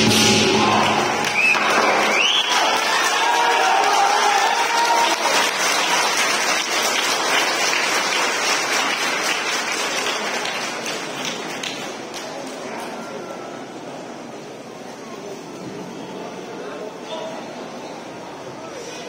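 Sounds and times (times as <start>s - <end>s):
audience applause: 0.0s - 12.7s.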